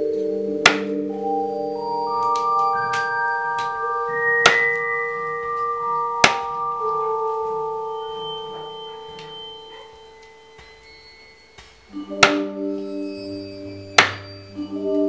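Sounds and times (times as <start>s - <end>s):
ringing bell-like music notes: 0.0s - 15.0s
cleaver chopping on a wooden block: 0.7s - 0.9s, 12.2s - 12.5s.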